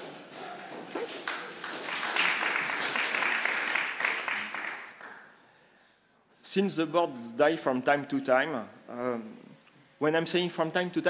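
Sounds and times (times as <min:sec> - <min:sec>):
audience applause: 0:00.9 - 0:05.3.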